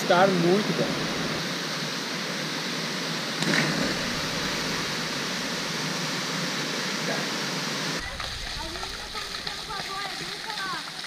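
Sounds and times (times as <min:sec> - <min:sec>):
waterfall pouring into pool: 0:03.5 - 0:11.0.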